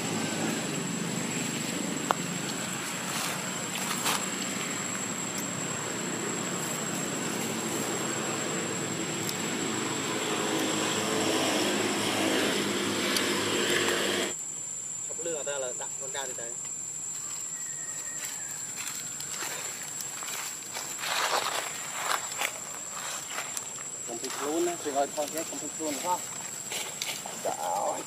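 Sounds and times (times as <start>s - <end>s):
engine drone: 0.0s - 14.4s.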